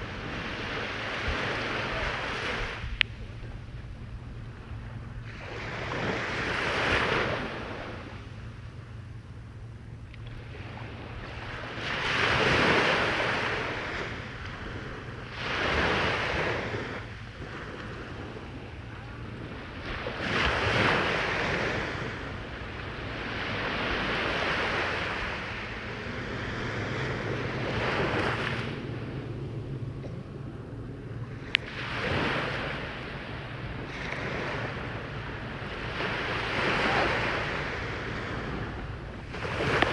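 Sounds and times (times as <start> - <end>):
waves breaking on beach: 0.0 - 39.9
low rumble: 16.3 - 39.9.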